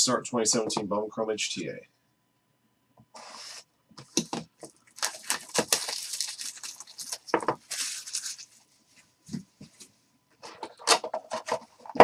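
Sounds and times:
plastic wrap crinkling: 4.6 - 8.9
box cutter slitting plastic wrap: 5.0 - 8.3.

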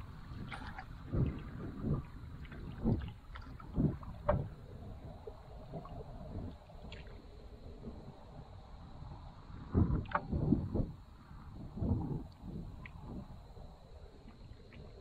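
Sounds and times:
paddle splashing in water: 0.0 - 4.6.

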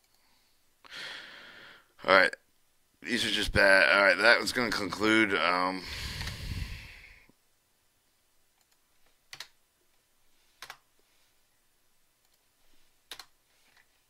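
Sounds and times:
computer input clicks: 13.1 - 13.3.

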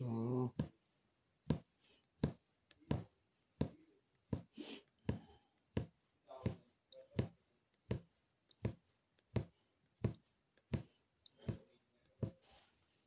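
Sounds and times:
punch needle poking through fabric: 1.4 - 6.6, 7.2 - 12.4.

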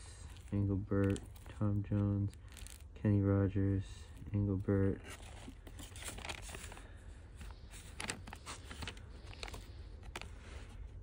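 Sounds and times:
record sleeves rustling and tapping: 0.3 - 3.0, 4.2 - 10.8.

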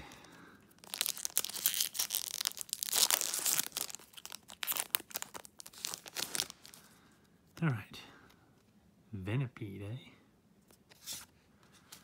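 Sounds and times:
foil wrapper tearing and crinkling: 0.7 - 6.8.

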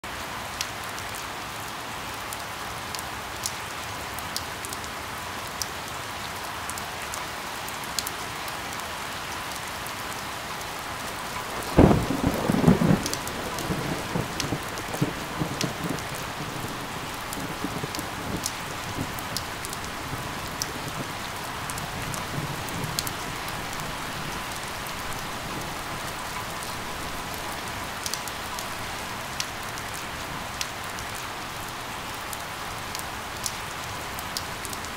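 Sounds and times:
steady rain: 0.0 - 34.9
raindrops ticking close by: 0.2 - 34.9
thunderclap and rumble: 11.3 - 27.4.

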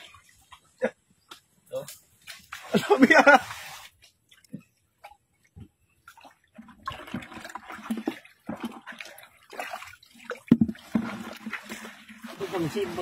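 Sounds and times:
muddy water sloshing: 0.0 - 13.0
sharp water splash: 2.2 - 4.0, 6.8 - 13.0.

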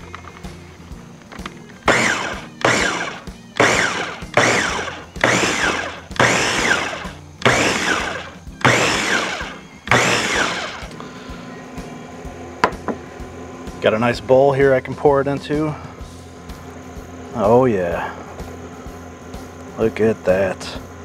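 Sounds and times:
food processor pulse-chopping: 1.9 - 11.0.

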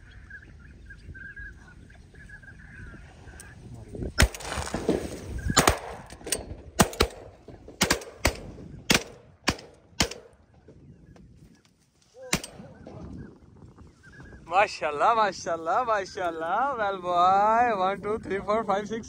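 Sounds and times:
shotgun shots: 4.2 - 10.4, 12.3 - 12.7.

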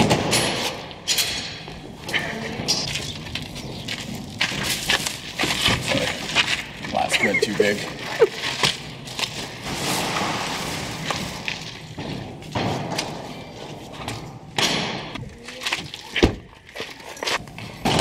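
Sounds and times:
plastic bags rustling: 2.8 - 12.0.

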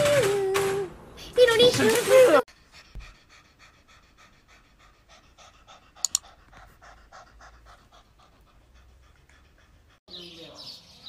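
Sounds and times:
cat panting: 2.5 - 10.1
sharp clicks: 6.0 - 6.3.

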